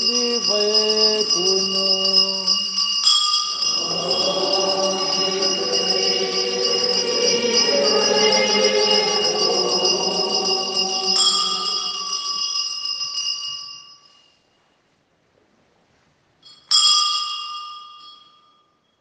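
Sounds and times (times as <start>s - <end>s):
altar bells ringing: 0.0s - 14.4s, 16.4s - 18.8s
voices singing: 3.5s - 12.4s.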